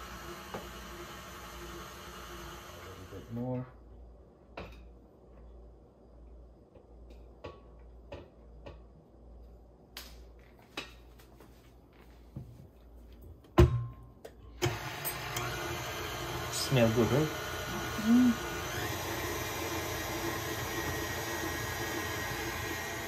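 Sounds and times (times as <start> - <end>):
stand mixer motor running: 14.6 - 23.0.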